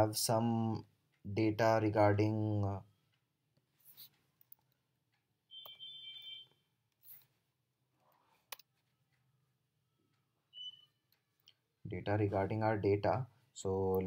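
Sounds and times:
keyboard typing and mouse clicks: 0:04.0 - 0:07.3
faint high electronic beep: 0:05.5 - 0:06.6, 0:10.5 - 0:11.0.

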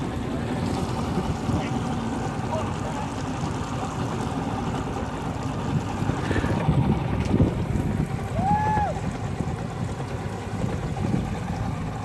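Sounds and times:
boat motor rumbling: 0:00.0 - 0:12.0
wind on microphone: 0:05.5 - 0:11.9.

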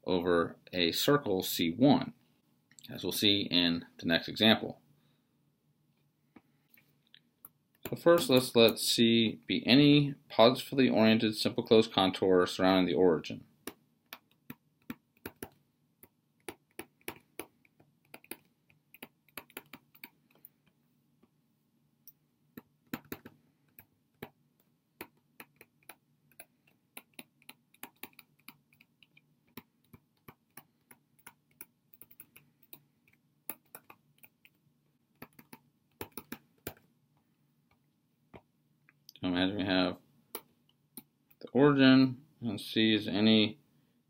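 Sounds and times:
stylus tapping on tablet screen: 0:13.6 - 0:21.4, 0:22.1 - 0:36.9.

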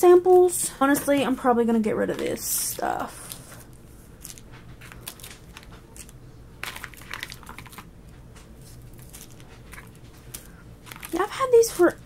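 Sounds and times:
plastic packets clicking and rustling: 0:04.2 - 0:11.9.

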